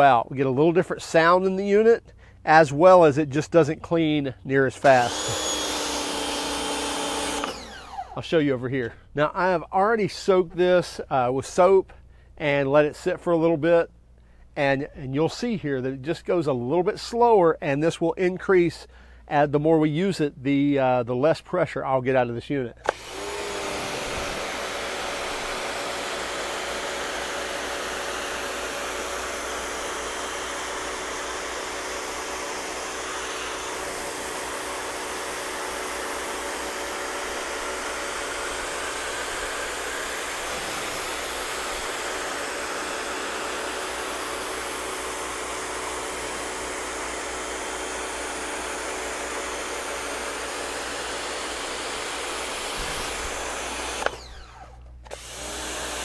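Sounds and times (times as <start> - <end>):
pressure washer motor hum: 4.8 - 8.2, 22.8 - 56.0.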